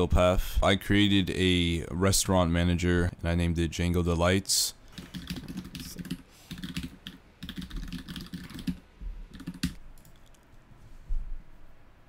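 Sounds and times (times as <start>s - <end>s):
typing on computer keyboard: 5.0s - 10.4s.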